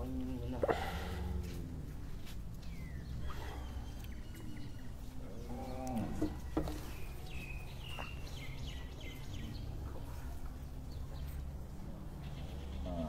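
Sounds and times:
small birds chirping: 0.0s - 13.0s
cow mooing: 5.3s - 6.4s.

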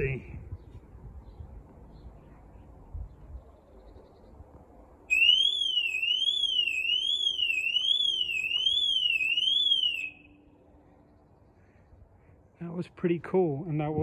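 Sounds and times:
warbling electronic siren: 5.1s - 10.4s.

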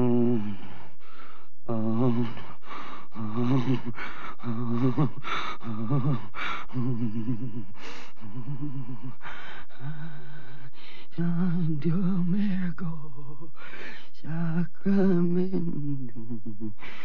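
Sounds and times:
harsh gasping breaths: 0.5s - 1.6s, 2.3s - 6.8s, 7.6s - 11.2s, 13.6s - 14.2s, 16.8s - 17.0s.

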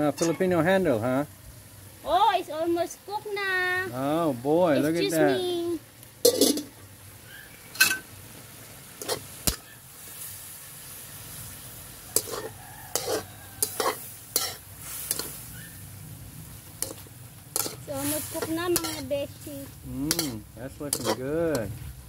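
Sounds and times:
metal spatula scraping pan: 0.0s - 0.6s, 6.2s - 6.7s, 9.0s - 9.7s, 12.1s - 15.5s, 16.8s - 19.2s, 20.0s - 21.7s
food sizzling in a wok: 0.0s - 22.0s.

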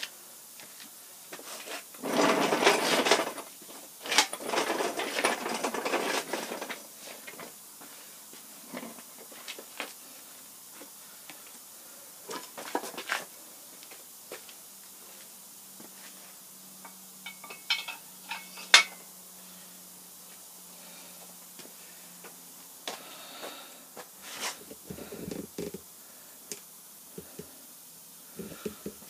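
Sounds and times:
hoist rolling on concrete rattling: 2.0s - 6.8s.

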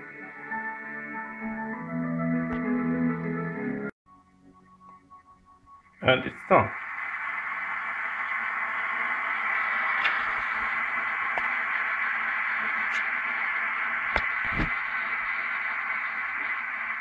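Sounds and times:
steady hiss: 5.8s - 17.0s.

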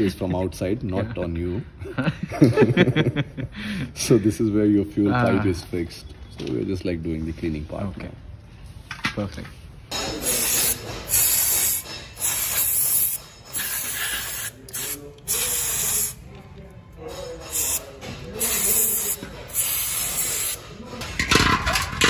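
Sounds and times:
aerosol spray hissing: 10.2s - 16.2s, 17.5s - 20.6s.

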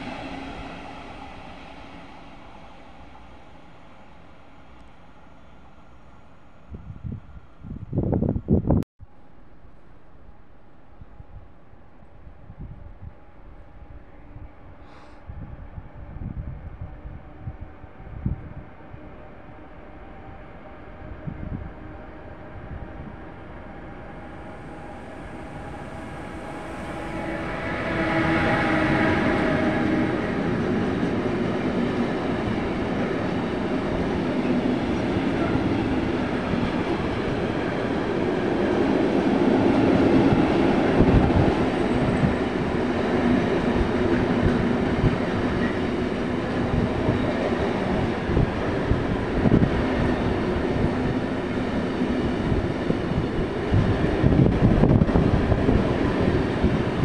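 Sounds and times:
locomotive humming tone: 15.4s - 57.0s.

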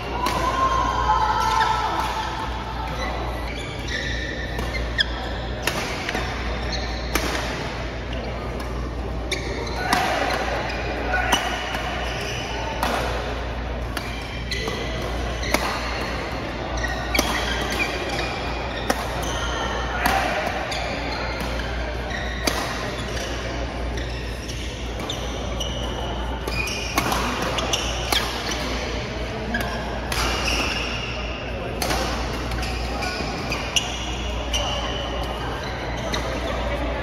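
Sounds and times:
shoes squeaking on court floor: 1.6s - 12.8s, 13.6s - 37.0s
racket hitting shuttlecock: 4.5s - 7.8s, 11.3s - 23.5s, 24.9s - 28.8s, 31.7s - 34.3s.

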